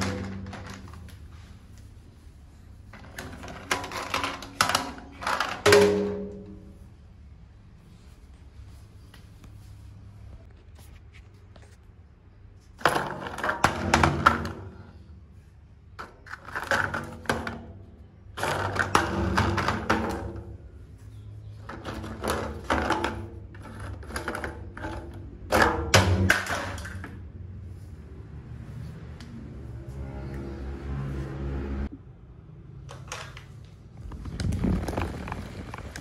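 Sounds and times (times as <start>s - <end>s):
plastic toys clattering down metal stairs: 0.0s - 1.2s, 3.0s - 6.5s, 12.8s - 15.0s, 16.0s - 20.6s, 21.6s - 27.2s.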